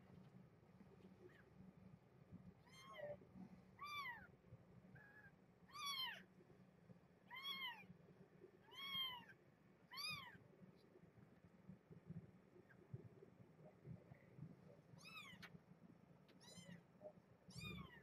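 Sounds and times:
newborn kitten mewing: 7.3s - 7.9s.

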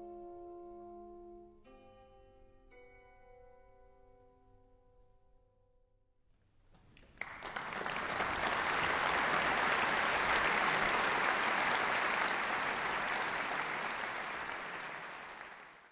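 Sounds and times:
audience applauding: 6.8s - 15.9s.

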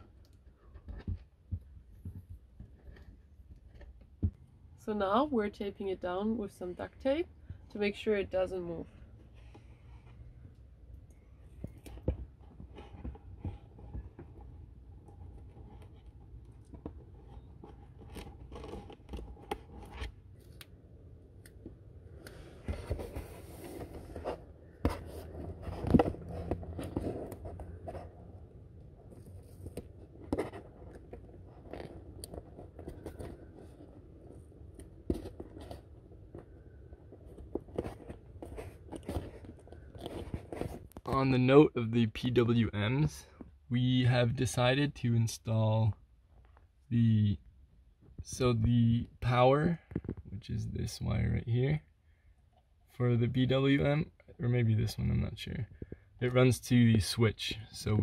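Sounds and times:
scrapes rubs and clicks: 11.4s - 20.7s, 21.4s - 41.2s.

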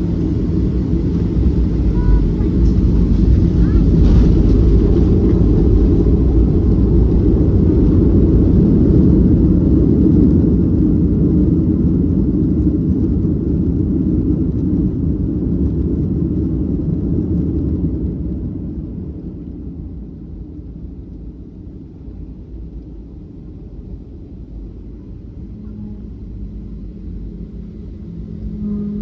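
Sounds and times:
engine and wheels rumbling: 0.0s - 29.0s.

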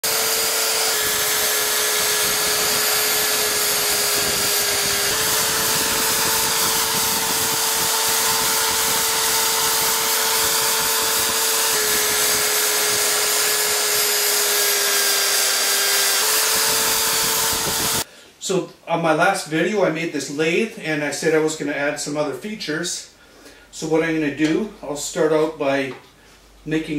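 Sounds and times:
drill bit drilling into wood: 0.0s - 18.1s
electric drill motor whine: 0.0s - 18.1s.

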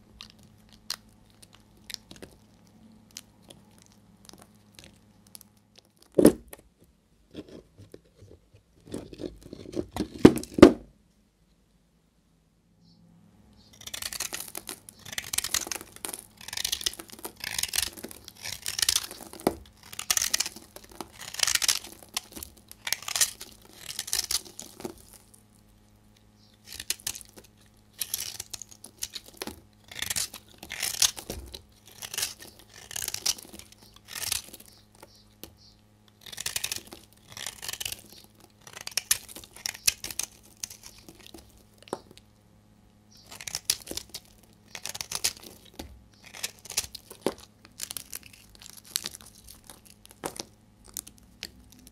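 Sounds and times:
knife scraping soap: 7.3s - 10.2s, 13.7s - 25.4s, 26.5s - 42.2s, 43.2s - 51.9s.

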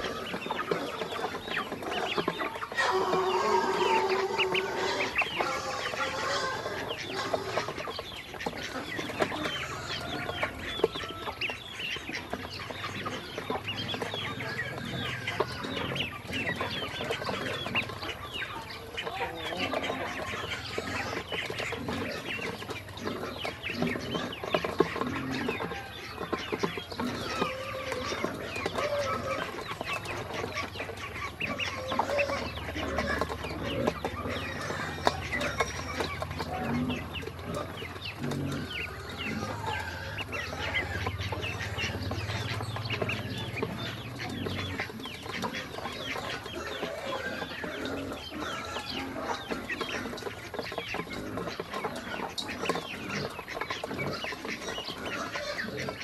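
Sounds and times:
ducklings peeping: 0.0s - 56.0s.

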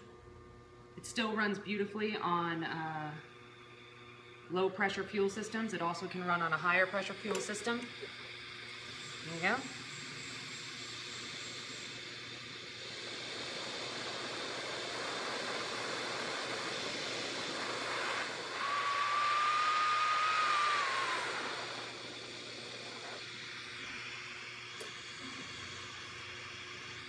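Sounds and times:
hand torch hissing: 8.8s - 27.0s
thin whistle: 18.0s - 21.9s.

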